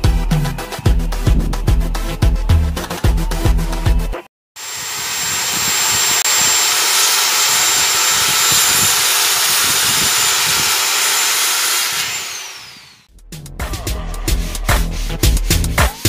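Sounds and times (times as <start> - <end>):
power tool whining: 4.6 - 13.1.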